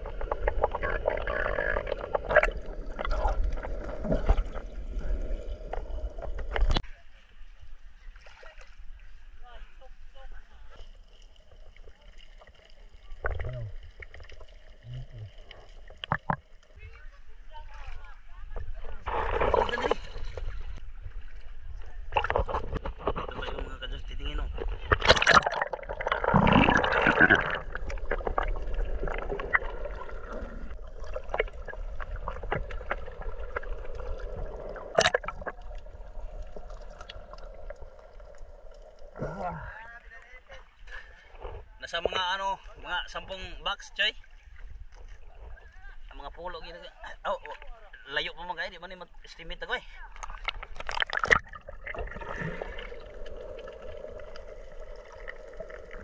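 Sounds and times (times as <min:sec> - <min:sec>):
water splashing: 0:00.0 - 0:46.4, 0:49.3 - 0:56.0
underwater clicks: 0:13.2 - 0:16.7, 0:31.0 - 0:39.2, 0:50.2 - 0:56.0.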